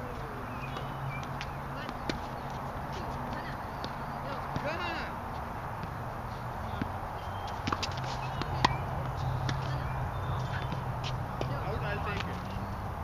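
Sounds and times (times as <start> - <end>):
tennis ball struck and bouncing: 0.7 - 2.4, 6.7 - 9.9.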